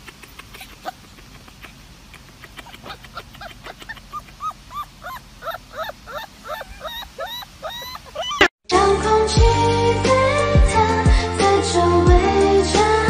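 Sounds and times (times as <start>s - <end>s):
puppy yipping: 0.0s - 8.5s.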